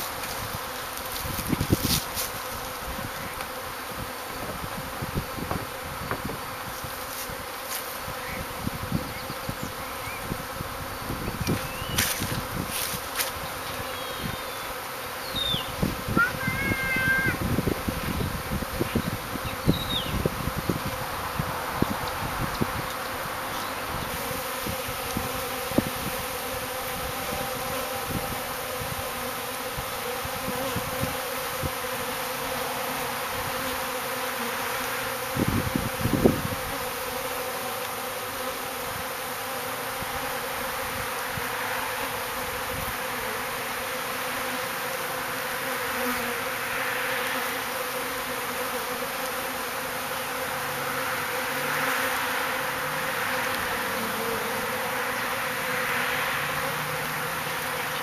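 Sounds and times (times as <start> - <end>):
honeybees buzzing: 0.0 - 58.0.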